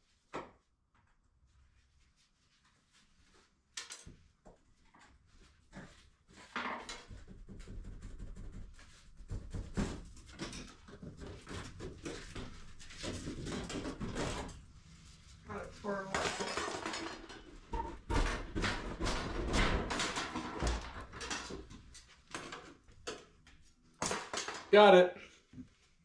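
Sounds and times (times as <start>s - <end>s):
scraping creaking and clattering: 15.5s - 23.4s.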